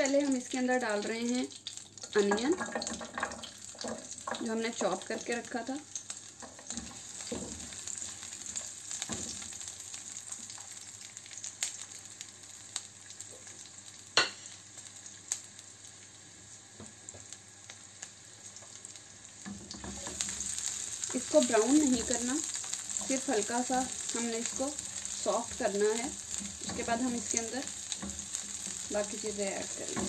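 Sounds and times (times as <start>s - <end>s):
onion sizzling in frying pan: 0.0s - 30.0s
sharp pops of frying: 0.0s - 30.0s
spatula stirring in pan: 2.1s - 5.2s, 6.0s - 9.7s, 19.4s - 30.0s.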